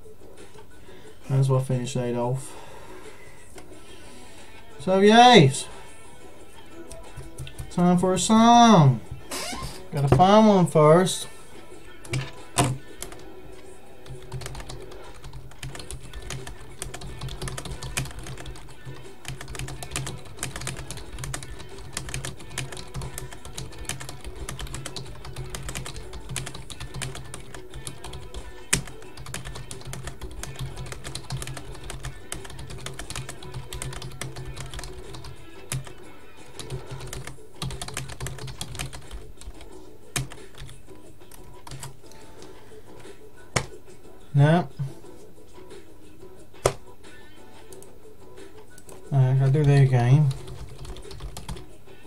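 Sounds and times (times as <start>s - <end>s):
quiet music: 0.0s - 52.0s
typing on computer keyboard: 6.9s - 7.7s, 14.1s - 36.0s, 36.6s - 39.6s, 40.2s - 41.9s, 50.3s - 51.6s.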